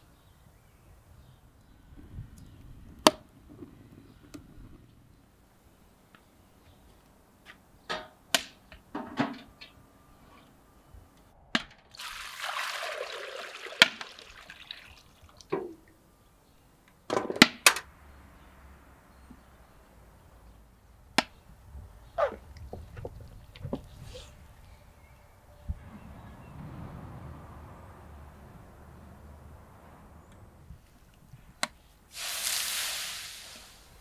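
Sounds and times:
liquid poured from metal bucket: 11.9 - 15.7.

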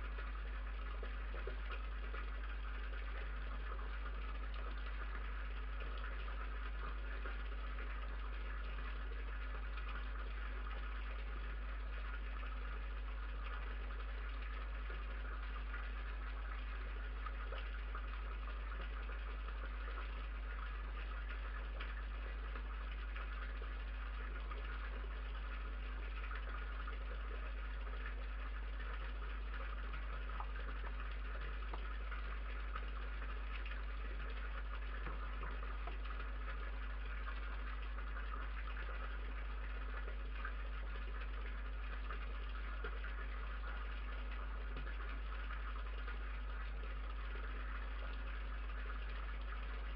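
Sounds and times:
low electrical hum: 0.0 - 49.9
faint ticks: 28.8 - 39.2.

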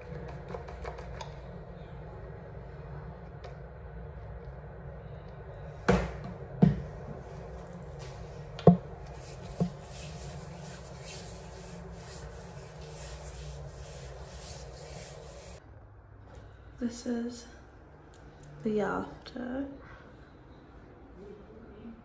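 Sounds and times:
steady low hum: 0.0 - 22.0
hands rubbing cream on skin: 8.8 - 15.6.

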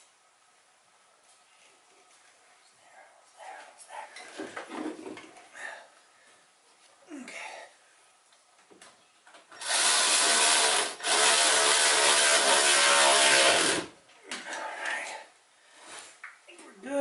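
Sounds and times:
electric ratchet running: 9.6 - 13.9.

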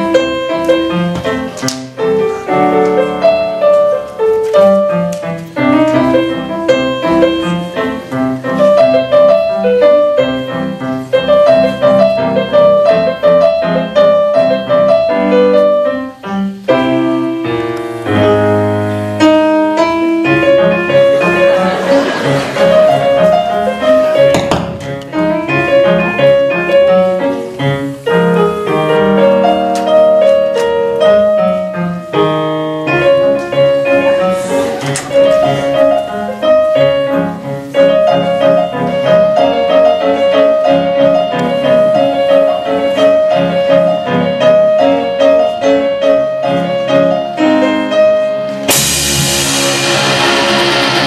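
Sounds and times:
keyboard riff: 0.0 - 51.0
live rock band playing: 15.6 - 27.6, 47.4 - 51.0
cymbals crashing: 48.7 - 51.0.

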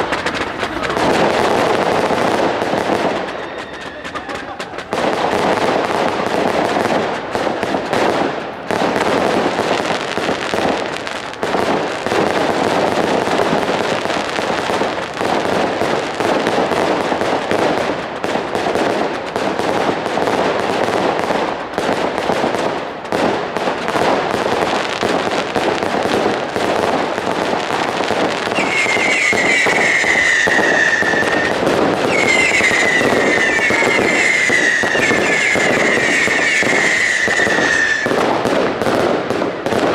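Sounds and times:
fireworks bangs and crackling: 0.0 - 39.9
high falling whistles: 28.6 - 31.5, 32.1 - 38.0.

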